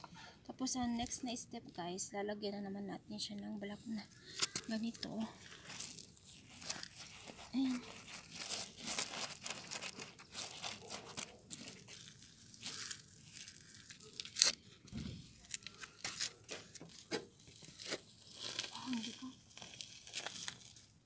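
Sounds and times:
fabric rubbing on microphone: 0:05.4 - 0:11.2.

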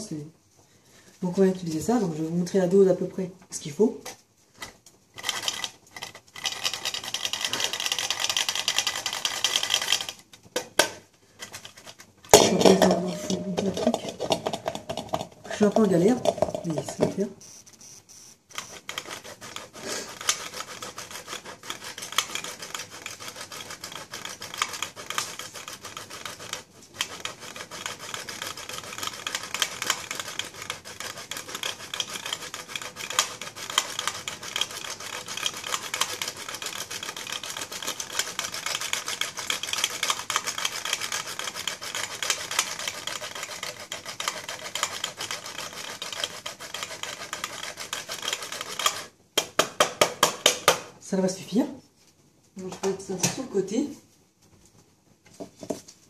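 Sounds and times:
cheese scraping on metal grater: 0:05.2 - 0:10.2, 0:18.5 - 0:49.2.

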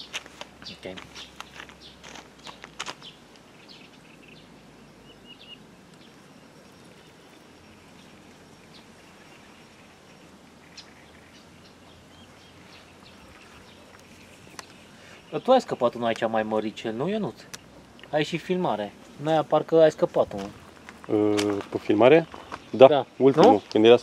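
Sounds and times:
high bird chirps: 0:00.0 - 0:16.1
faint outdoor ambience: 0:00.0 - 0:24.0.

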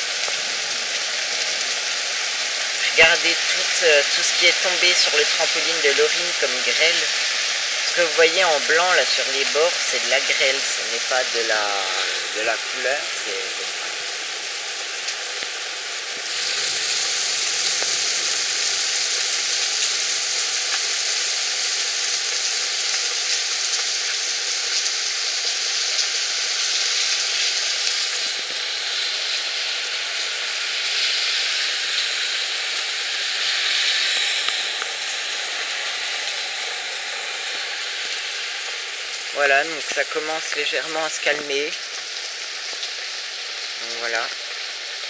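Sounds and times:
hail and rain on pavement: 0:11.8 - 0:45.0.

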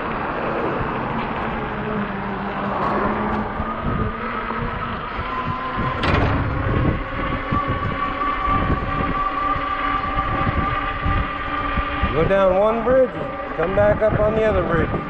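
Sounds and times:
tyre rumble and wind: 0:00.0 - 0:15.0
electric motor whine: 0:00.1 - 0:15.0.

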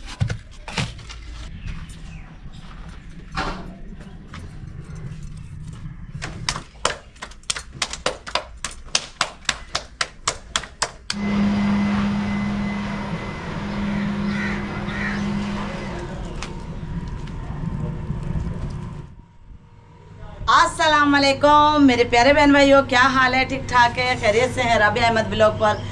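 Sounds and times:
low drone: 0:01.5 - 0:06.7, 0:11.1 - 0:25.9.

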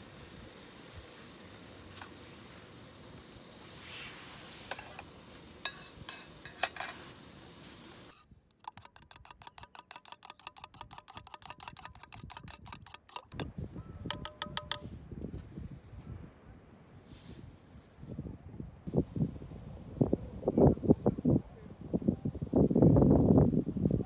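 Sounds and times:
spoon clinking in metal mug: 0:04.7 - 0:07.0, 0:08.6 - 0:14.8
louder clicks and knocks: 0:08.5 - 0:14.8
ringing taps: 0:13.2 - 0:14.8.

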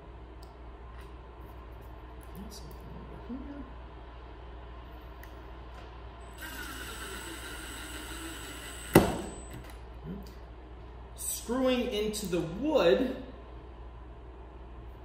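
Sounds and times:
cordless drill motor whining: 0:06.3 - 0:09.2.

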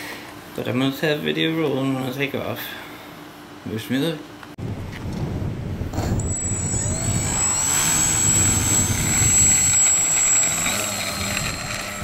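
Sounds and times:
wind rumbling on microphone: 0:04.6 - 0:12.0
electric motor and propeller whine: 0:05.2 - 0:12.0.

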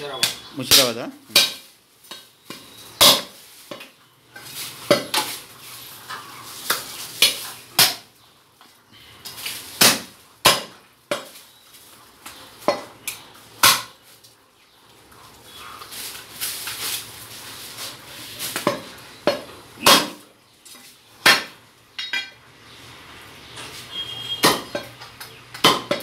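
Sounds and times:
cleaver chopping meat and bone: 0:00.2 - 0:03.9, 0:04.9 - 0:05.3, 0:06.7 - 0:08.1, 0:09.8 - 0:11.4, 0:12.6 - 0:14.0, 0:18.6 - 0:20.2, 0:21.2 - 0:21.6, 0:24.2 - 0:26.0.

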